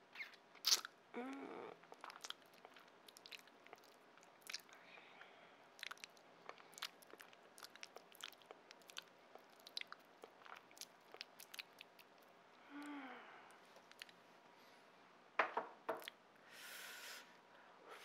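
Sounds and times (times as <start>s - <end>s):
wet chewing mouth sounds: 1.9s - 4.8s, 5.8s - 12.3s, 13.8s - 14.2s.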